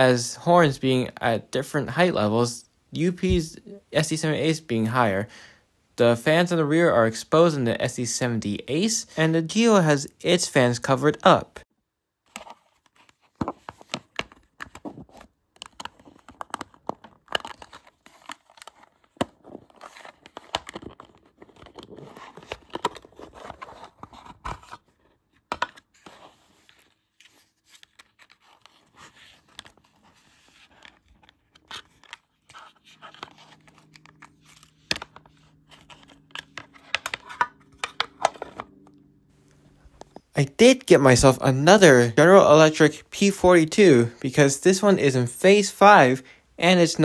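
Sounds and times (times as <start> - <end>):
plastic and foam scraping and clicking: 12.3 - 38.9.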